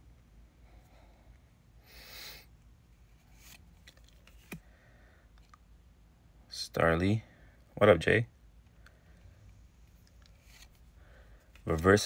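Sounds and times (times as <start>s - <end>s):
trading card sliding against cards: 3.0s - 4.6s, 9.8s - 10.9s.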